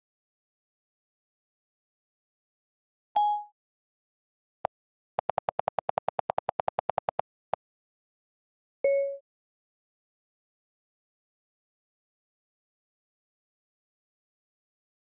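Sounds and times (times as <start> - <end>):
phone keyboard clicks: 5.2 - 7.2.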